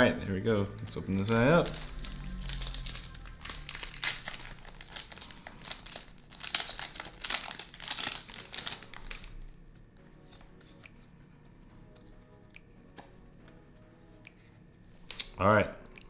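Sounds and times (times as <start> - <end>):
foil wrapper crinkling: 0.8 - 9.4.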